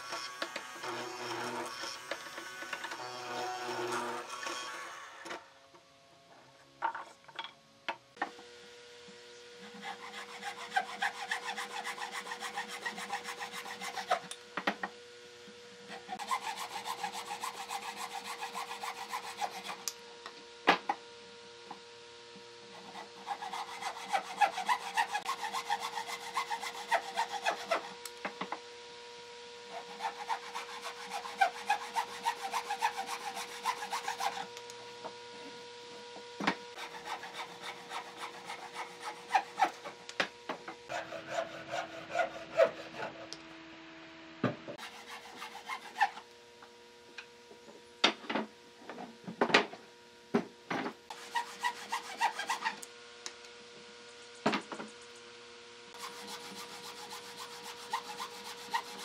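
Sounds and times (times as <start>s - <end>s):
hand saw cutting wood: 0.0s - 5.4s, 9.6s - 14.9s, 15.8s - 20.0s, 22.7s - 28.5s, 29.7s - 34.6s, 36.5s - 40.1s, 40.9s - 43.4s, 44.8s - 46.3s, 51.1s - 52.9s, 55.9s - 59.0s.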